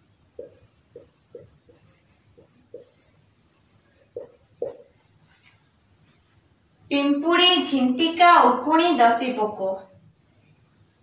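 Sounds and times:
marker pen writing on whiteboard: 0.0 - 6.6.

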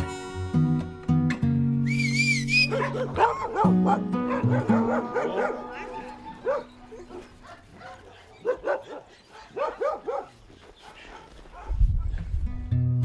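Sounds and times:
dogs barking: 2.6 - 12.3.

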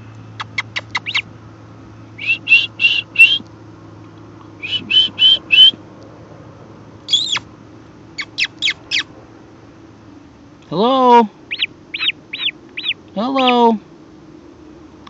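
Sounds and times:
bird chick peeping: 0.4 - 1.3, 2.2 - 3.4, 4.6 - 5.8, 7.1 - 7.5, 8.2 - 9.1, 11.5 - 13.7.

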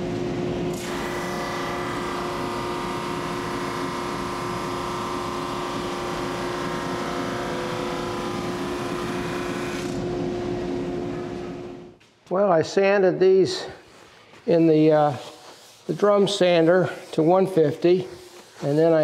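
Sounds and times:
drum sander humming: 0.8 - 11.8
board sanding rush: 14.5 - 19.0.

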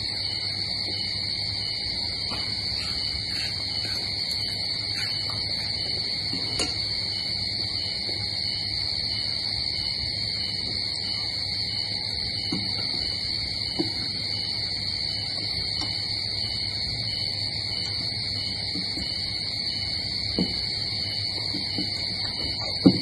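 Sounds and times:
insects chorus: 0.0 - 23.0.

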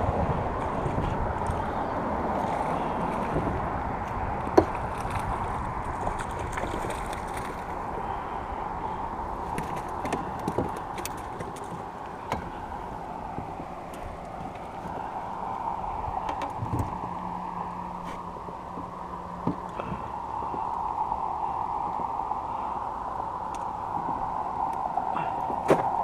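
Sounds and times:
steady rushing noise: 0.0 - 26.0.

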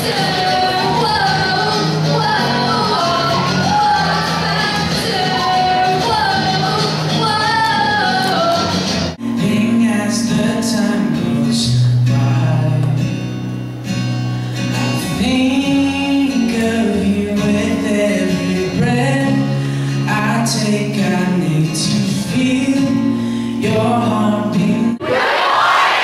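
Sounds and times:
woman singing: 0.0 - 8.9
man singing: 0.0 - 13.3, 14.7 - 25.0
acoustic guitar: 0.0 - 26.0.

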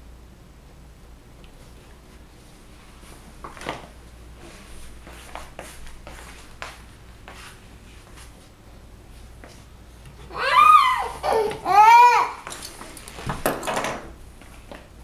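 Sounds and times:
low room hum: 0.0 - 15.0
soft taps and scuffs of sneakers: 3.4 - 8.6.

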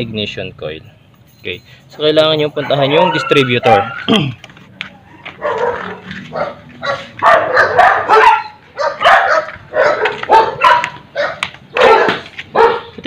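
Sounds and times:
dog barking: 5.4 - 13.0.

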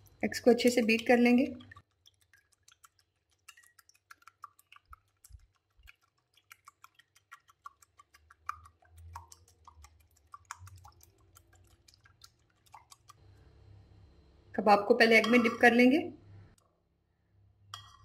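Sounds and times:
whisk clicking against bowl: 1.6 - 13.2.

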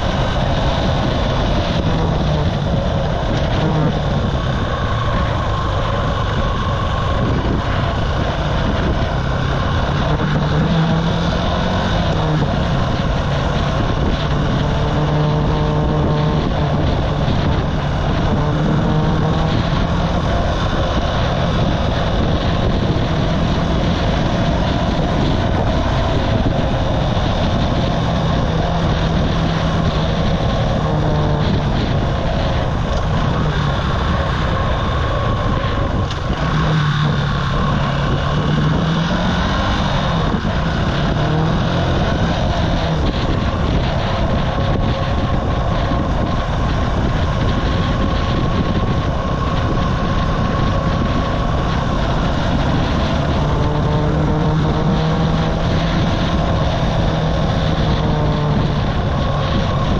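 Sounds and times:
buzzy motorcycle engine: 0.0 - 59.9
wind buffeting microphone: 0.0 - 59.9.

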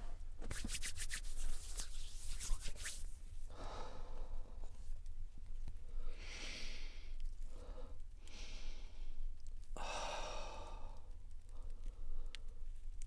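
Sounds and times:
man breathing: 3.5 - 4.8, 5.9 - 9.2, 9.8 - 12.6.

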